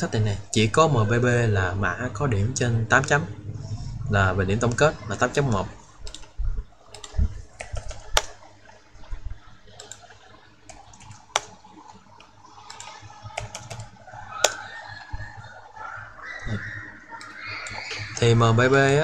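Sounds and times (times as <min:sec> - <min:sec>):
keyboard keystrokes: 0:06.0 - 0:06.3, 0:06.9 - 0:08.4
mouse clicks: 0:06.9 - 0:08.4.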